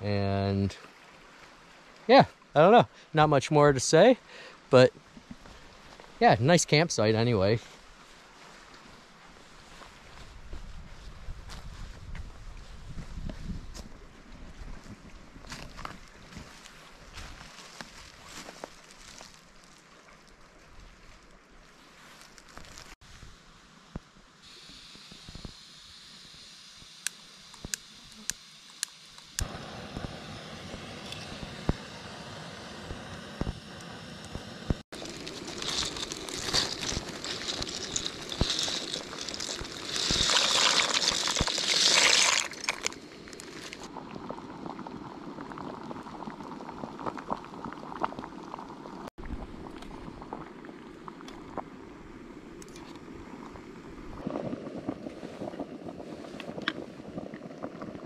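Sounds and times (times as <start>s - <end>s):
plastic bag crinkling: 35.0s - 43.9s.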